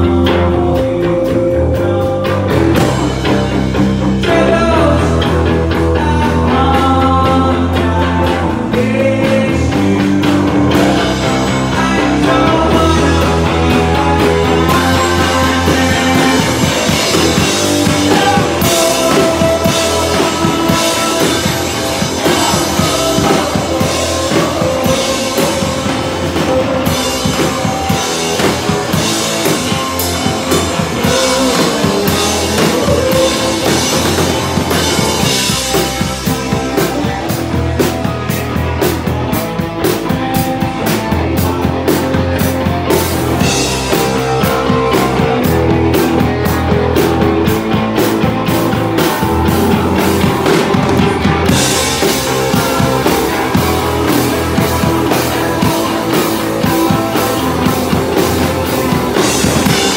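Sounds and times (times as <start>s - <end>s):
vocalist singing: 0.0s - 38.8s, 39.8s - 59.9s
drum kit: 0.0s - 59.9s
electric guitar: 0.0s - 59.9s.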